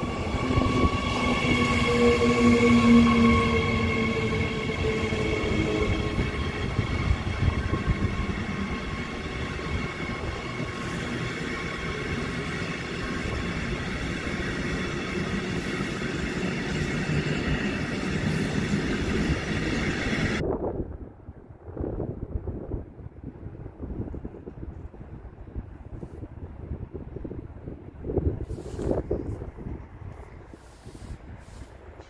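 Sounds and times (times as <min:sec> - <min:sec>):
electric train whine: 0:00.0 - 0:20.4
train rumbling on rails: 0:00.0 - 0:32.0.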